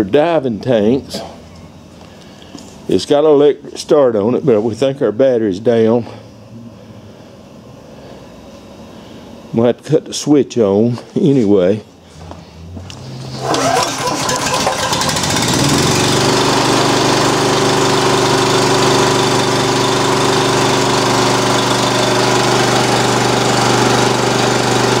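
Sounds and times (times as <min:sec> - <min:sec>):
air compressor engine running: 0:12.1 - 0:25.0.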